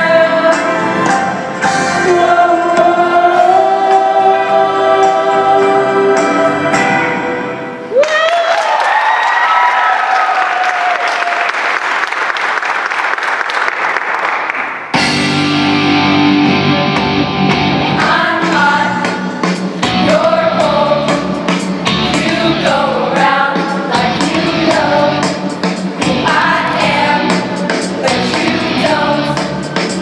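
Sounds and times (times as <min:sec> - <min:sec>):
choir singing: 0:00.0 - 0:07.7, 0:17.7 - 0:30.0
pop backing track: 0:00.0 - 0:07.8, 0:15.0 - 0:30.0
audience applause and cheering: 0:07.9 - 0:15.2.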